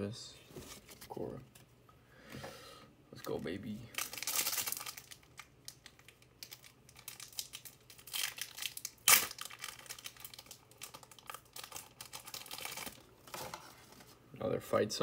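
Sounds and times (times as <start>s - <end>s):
card wrapper crinkling: 3.9s - 14.0s.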